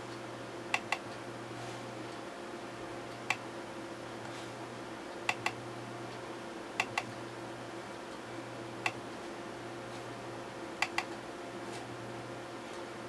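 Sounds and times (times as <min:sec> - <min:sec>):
steady low hum: 0:00.0 - 0:13.0
computer mouse button clicking: 0:00.8 - 0:01.0, 0:05.3 - 0:05.6, 0:06.8 - 0:07.1, 0:10.8 - 0:11.1.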